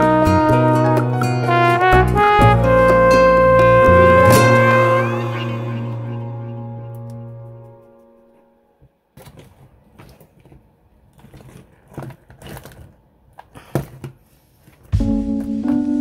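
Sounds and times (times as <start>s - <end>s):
background music: 0.0s - 8.7s, 15.0s - 16.0s.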